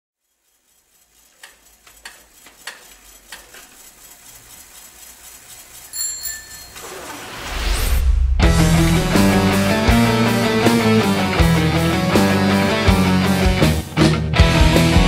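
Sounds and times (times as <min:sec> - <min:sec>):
ticking clicks: 0:00.5 - 0:06.9
bicycle bell ringing: 0:05.8 - 0:07.1
rising swell of noise: 0:06.8 - 0:12.8
rock band playing: 0:08.4 - 0:15.0.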